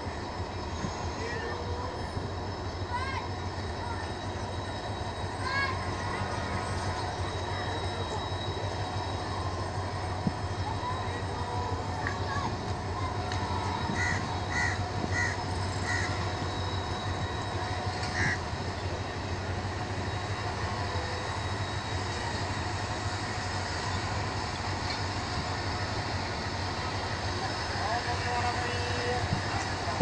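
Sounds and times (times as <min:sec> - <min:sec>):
diesel locomotive droning: 0:00.0 - 0:30.0
crow cawing: 0:14.0 - 0:16.2, 0:18.1 - 0:18.4.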